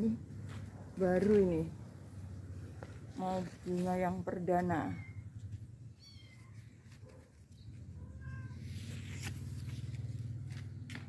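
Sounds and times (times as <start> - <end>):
cat meowing: 6.0 - 6.8, 8.0 - 8.7.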